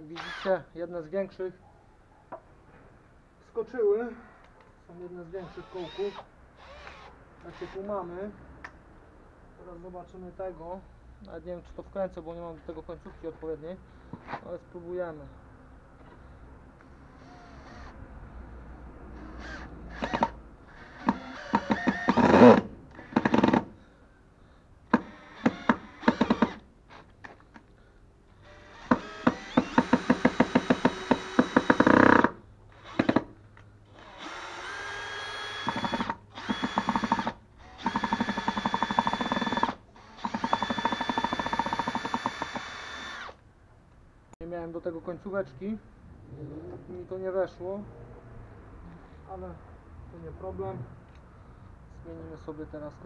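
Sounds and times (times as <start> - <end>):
cordless drill driving screw: 0.2 - 0.5, 5.4 - 7.9, 17.2 - 18.0, 19.2 - 23.7, 24.9 - 27.0, 28.4 - 33.3, 33.9 - 43.4
drill bit clicking: 5.5 - 7.9, 19.4 - 23.7, 28.5 - 33.3, 34.0 - 43.4.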